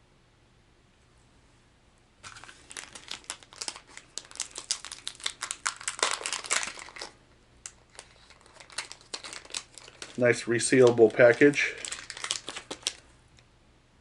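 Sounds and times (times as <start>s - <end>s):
plastic pack crinkling: 2.2s - 13.1s.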